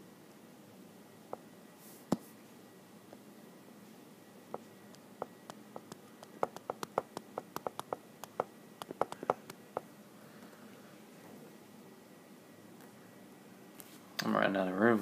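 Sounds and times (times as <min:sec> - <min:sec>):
stylus clicking on tablet screen: 0:04.6 - 0:09.9.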